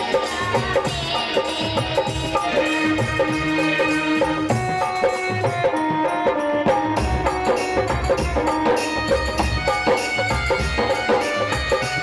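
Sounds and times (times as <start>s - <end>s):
hand drums beating: 0.0s - 12.0s.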